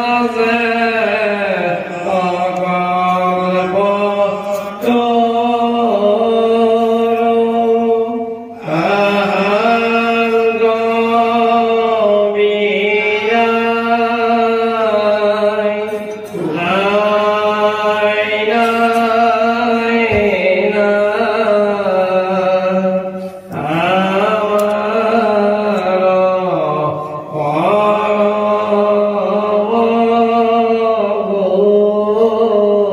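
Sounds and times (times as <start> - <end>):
man chanting melodically: 0.0 - 32.9
short breaths: 23.1 - 23.6.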